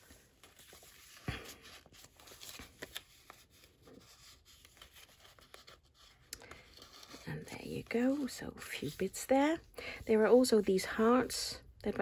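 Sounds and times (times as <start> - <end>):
paper rustling and scraping: 0.0 - 9.6.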